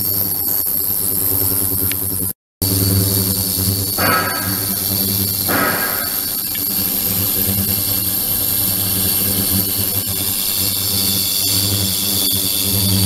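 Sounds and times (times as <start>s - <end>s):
electrical buzzing hum: 0.0s - 13.0s
thin high whines: 2.6s - 13.0s.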